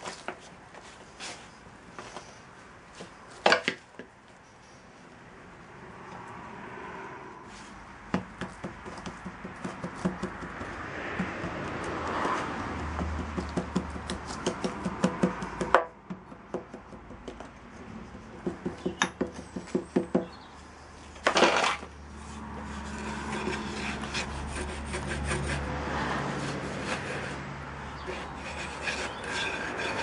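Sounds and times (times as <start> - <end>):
wooden bar scraping box: 21.2 - 30.0.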